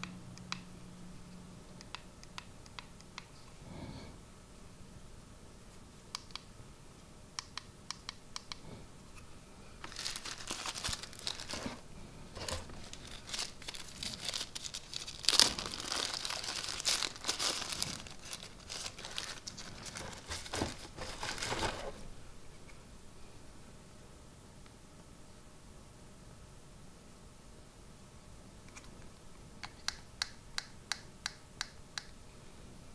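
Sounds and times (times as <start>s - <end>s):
plastic wrapper crinkling: 9.8s - 22.1s.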